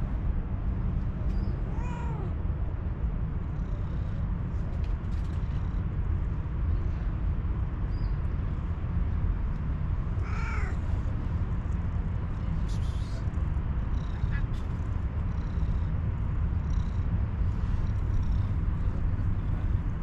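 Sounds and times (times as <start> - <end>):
steady low rumble: 0.0 - 20.0
cat meowing: 1.7 - 2.4, 10.2 - 10.8.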